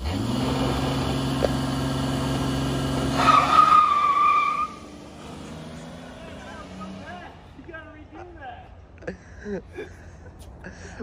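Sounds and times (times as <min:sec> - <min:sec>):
car engine revving high: 0:00.0 - 0:07.5
tire squealing: 0:00.0 - 0:08.2.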